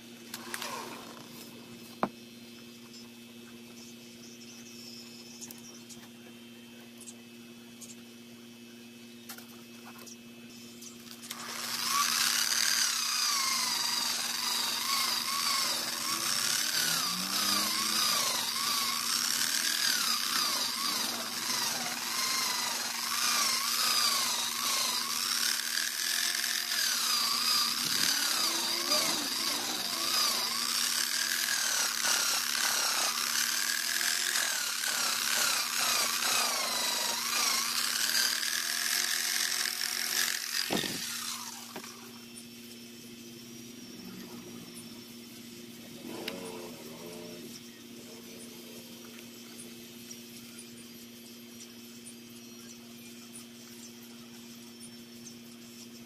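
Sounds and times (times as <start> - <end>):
angle grinder running: 11.1 - 42.2.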